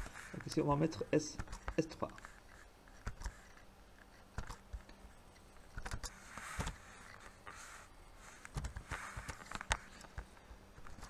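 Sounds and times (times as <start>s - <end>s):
computer mouse clicks: 2.9s - 6.8s
keyboard typing: 4.1s - 5.0s.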